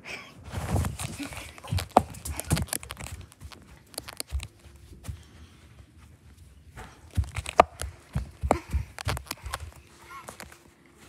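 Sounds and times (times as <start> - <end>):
phone handling rustles: 0.8 - 4.7, 7.0 - 10.7.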